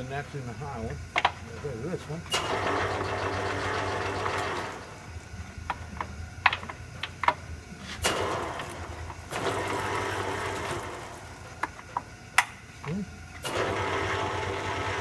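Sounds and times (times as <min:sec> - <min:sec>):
lathe headstock running: 0:02.3 - 0:05.1, 0:08.1 - 0:11.4, 0:13.4 - 0:15.0.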